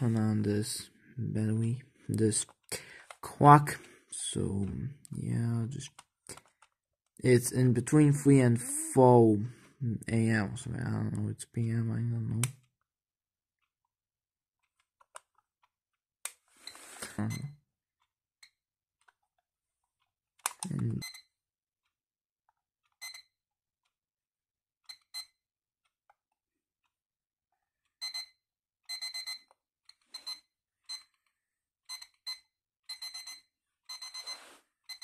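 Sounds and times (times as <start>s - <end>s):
alarm clock beeping: 23.0s - 23.3s, 28.0s - 29.5s, 30.1s - 31.1s, 31.9s - 35.0s.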